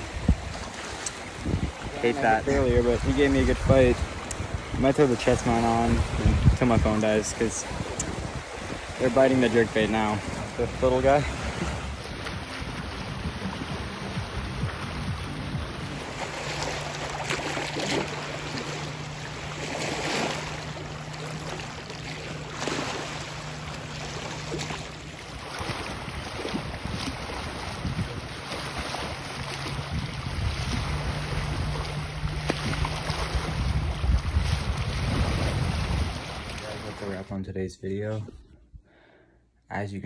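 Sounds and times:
wind buffeting microphone: 0:00.0 - 0:37.2
small waves lapping: 0:00.0 - 0:37.3
steady low hum: 0:11.3 - 0:36.0.

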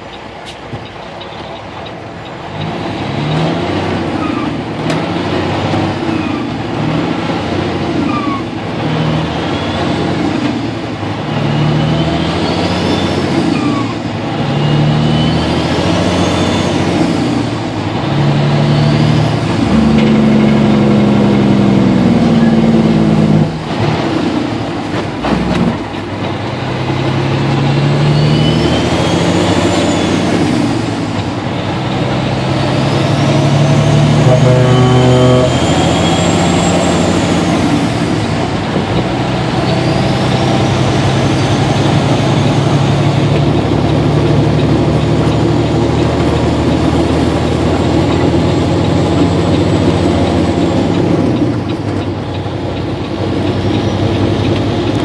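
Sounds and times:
diesel truck engine: 0:00.0 - 0:55.0
turbocharger whistle: 0:11.3 - 0:17.2, 0:27.8 - 0:30.7, 0:32.6 - 0:37.6, 0:39.4 - 0:43.3.

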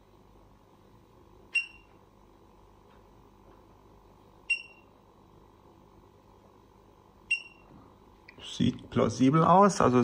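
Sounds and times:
faint steady hum: 0:00.0 - 0:10.0
high electronic beep: 0:04.5 - 0:04.8, 0:07.3 - 0:07.6.

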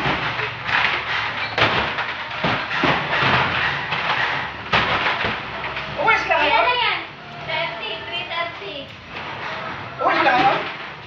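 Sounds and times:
plastic containers thumping and knocking: 0:00.0 - 0:06.6, 0:09.1 - 0:11.0.

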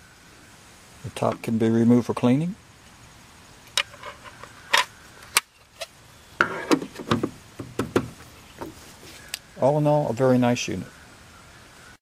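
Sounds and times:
plastic knocks and rattles: 0:06.4 - 0:08.8.

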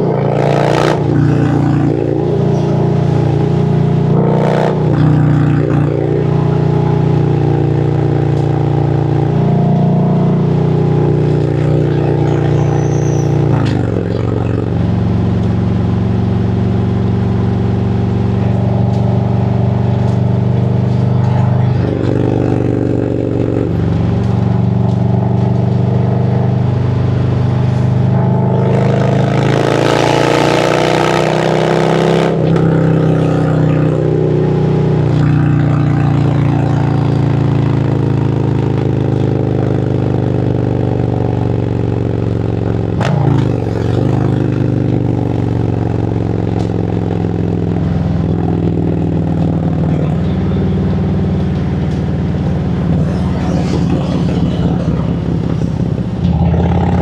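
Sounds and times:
motorcycle engine running: 0:00.0 - 0:57.0
loud rushing noise: 0:52.2 - 0:57.0.

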